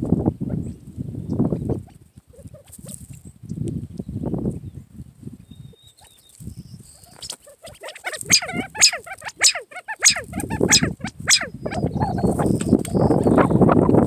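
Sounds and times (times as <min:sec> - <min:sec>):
quail calling: 0:07.0 - 0:14.0.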